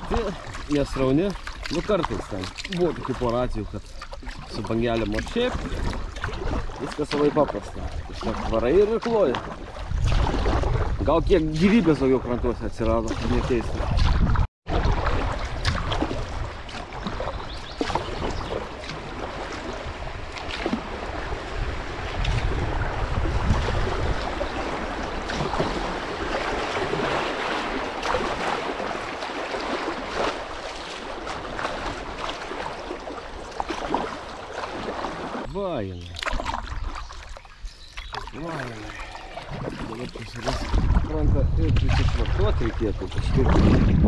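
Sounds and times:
kayak paddle splashing in water: 0.0s - 12.2s, 12.9s - 44.0s
wind gusting on microphone: 9.6s - 29.1s, 39.6s - 44.0s.

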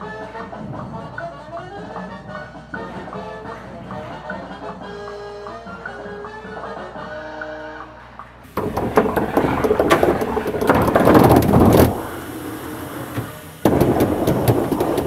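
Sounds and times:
air valves clicking: 8.4s - 15.0s
compressed air hissing: 8.4s - 15.0s.

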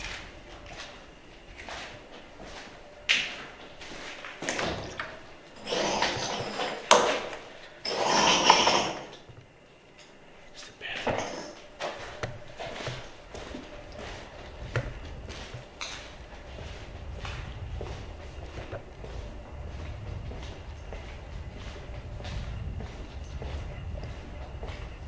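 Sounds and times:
footsteps: 0.0s - 25.0s
door scraping open: 5.6s - 9.2s.

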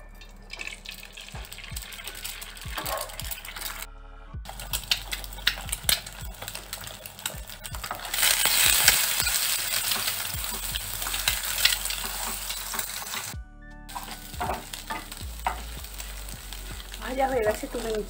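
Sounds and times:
eggs sizzling in oil: 0.0s - 3.9s, 4.5s - 18.0s
spatula scraping a pan: 4.5s - 17.0s.

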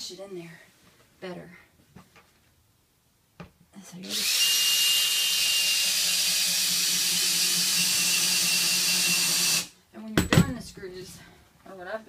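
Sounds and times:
cordless drill driving a screw: 4.0s - 9.7s.

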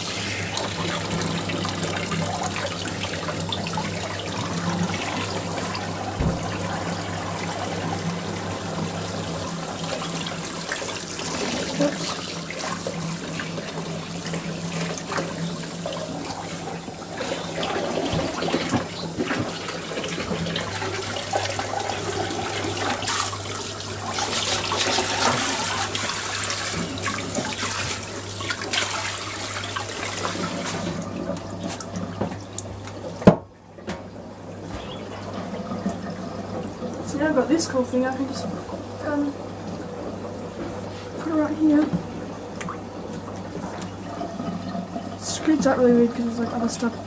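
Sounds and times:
water running from a hose: 0.0s - 33.4s, 34.6s - 39.8s, 42.6s - 47.0s
water splashing into plastic tub: 0.0s - 36.9s.

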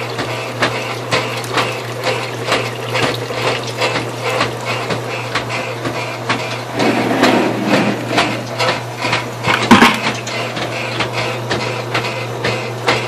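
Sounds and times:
rhythmic mechanical knocking: 0.0s - 13.0s
loud clatter: 9.5s - 10.2s.

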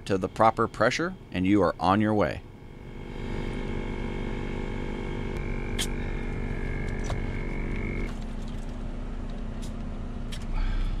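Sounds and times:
air compressor running: 2.4s - 8.2s.

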